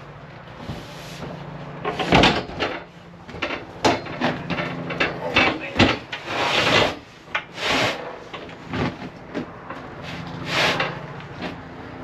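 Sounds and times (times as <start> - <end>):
panels scraping across frames: 4.2 - 9.2, 9.9 - 11.6.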